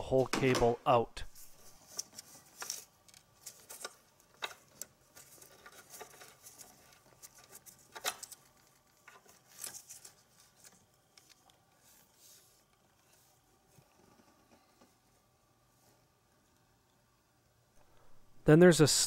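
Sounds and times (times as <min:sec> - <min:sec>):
clicks and rustles of throttle cable: 0:01.8 - 0:11.9.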